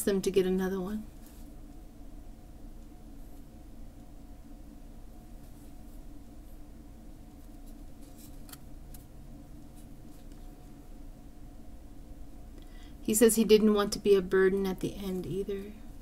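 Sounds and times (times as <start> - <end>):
low electrical hum: 0.0 - 16.0
scratchy rustles: 7.3 - 9.0.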